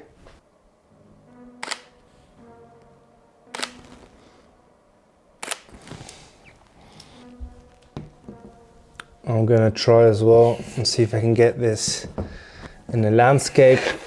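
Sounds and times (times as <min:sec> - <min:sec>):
camera shutter firing: 0:01.6 - 0:01.9, 0:03.5 - 0:03.8, 0:05.4 - 0:05.7.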